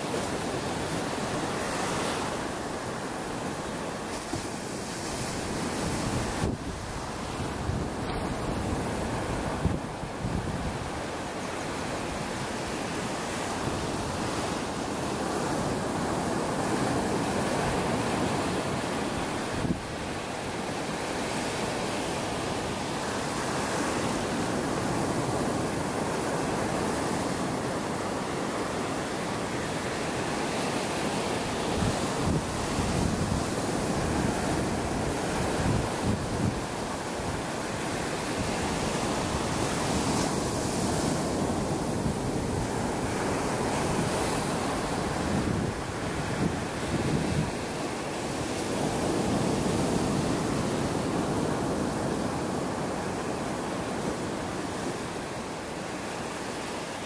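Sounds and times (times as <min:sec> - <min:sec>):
ocean waves breaking on beach: 0:00.0 - 0:57.0
wind buffeting microphone: 0:04.2 - 0:20.2, 0:31.4 - 0:52.8.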